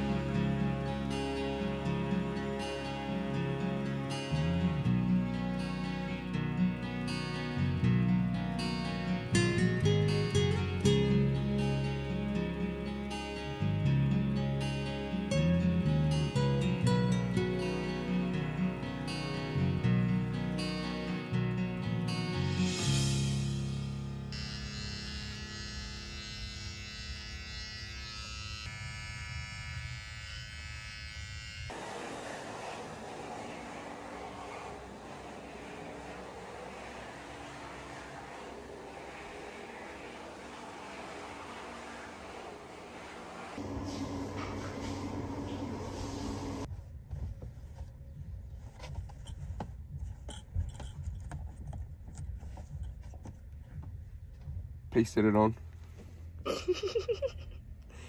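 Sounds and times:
electric hair clippers buzzing: 0:24.3 - 0:31.8
humming room noise: 0:24.3 - 0:46.7
low rumble: 0:32.0 - 0:46.7.

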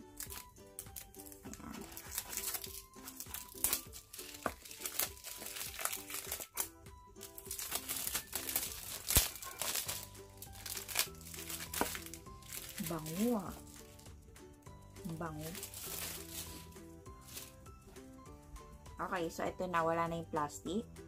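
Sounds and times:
plastic wrap crinkling: 0:00.0 - 0:14.2, 0:15.0 - 0:17.7
background music: 0:00.0 - 0:21.0.

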